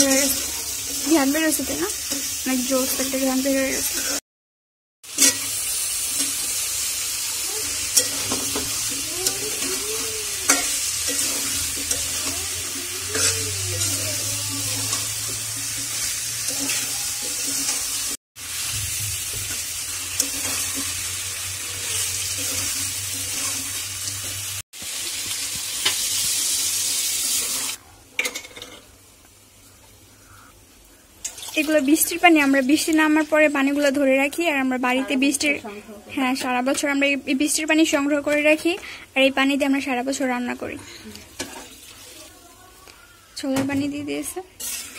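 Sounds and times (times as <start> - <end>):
meat sizzling in a wok: 0.0 - 4.2, 5.0 - 44.9
spatula scraping and knocking pan: 7.9 - 18.0.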